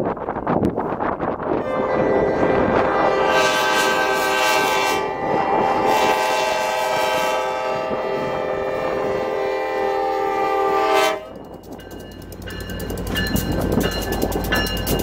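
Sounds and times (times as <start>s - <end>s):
train rumble: 0.0s - 15.0s
locomotive air horn chord: 1.6s - 11.4s.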